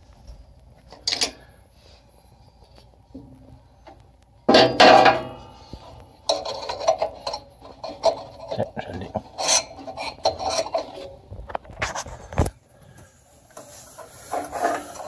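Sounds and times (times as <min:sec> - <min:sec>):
metal parts clattering: 0:06.3 - 0:11.1.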